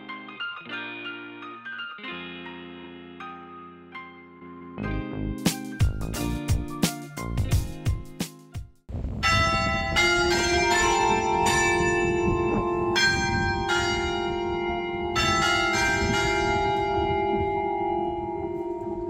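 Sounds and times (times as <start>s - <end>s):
background music: 0.0s - 8.7s
church bells ringing: 9.2s - 19.0s.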